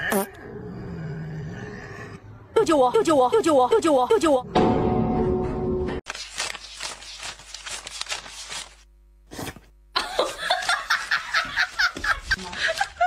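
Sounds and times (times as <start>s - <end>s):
person giggling: 10.0s - 13.0s.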